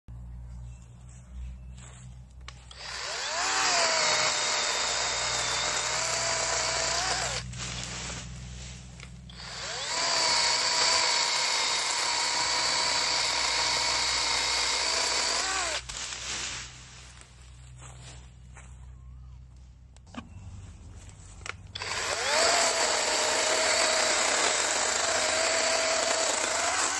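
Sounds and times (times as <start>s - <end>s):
battery chainsaw whining: 2.5s - 8.3s, 9.3s - 16.3s, 21.7s - 26.9s.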